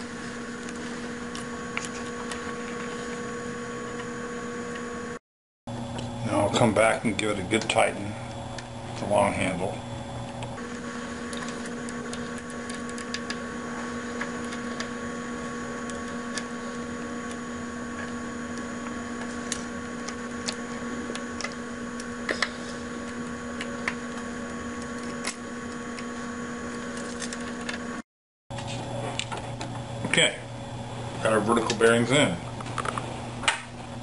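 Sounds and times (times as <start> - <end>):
steady hum: 0.0 - 34.0.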